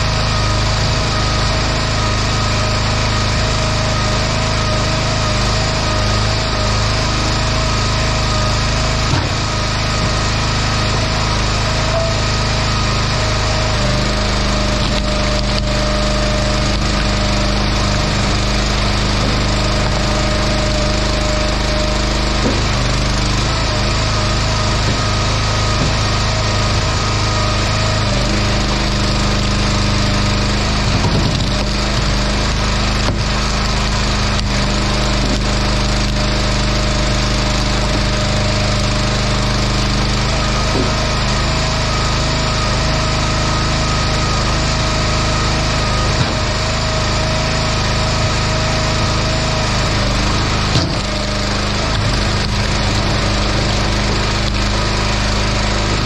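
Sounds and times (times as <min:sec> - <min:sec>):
small engine running: 0:00.0 - 0:56.0
wood splitting cracks: 0:05.9 - 0:56.0.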